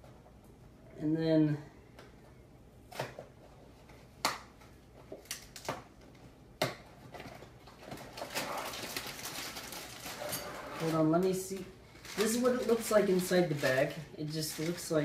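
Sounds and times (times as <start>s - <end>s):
plastic bag crinkling: 7.4s - 15.0s.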